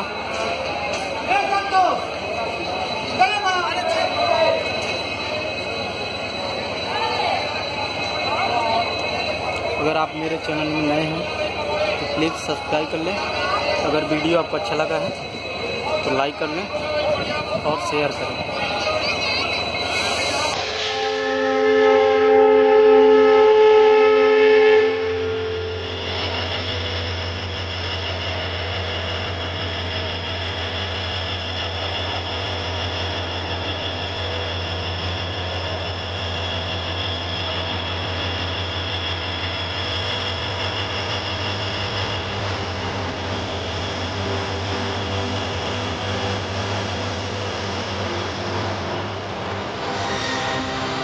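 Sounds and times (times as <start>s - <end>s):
train rumbling past: 0.0s - 51.0s
locomotive horn: 20.5s - 26.0s, 49.8s - 51.0s.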